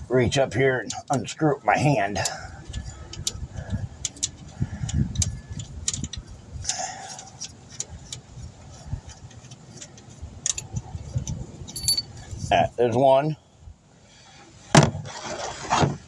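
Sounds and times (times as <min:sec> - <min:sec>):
metallic clicks and taps: 0:02.2 - 0:03.4, 0:04.0 - 0:08.2.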